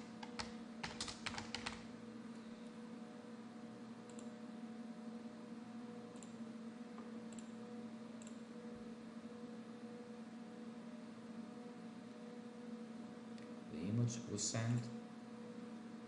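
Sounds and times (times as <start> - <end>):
low electrical hum: 0.0 - 16.0
computer mouse clicks: 4.1 - 4.3, 6.1 - 6.4, 7.3 - 7.6, 8.2 - 8.4.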